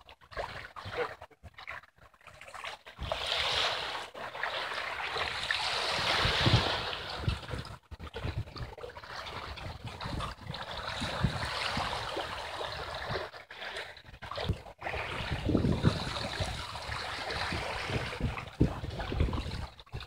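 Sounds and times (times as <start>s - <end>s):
waves splashing against rocks: 3.0s - 13.4s, 14.0s - 20.0s
wind buffeting microphone: 5.7s - 13.3s, 14.1s - 20.0s.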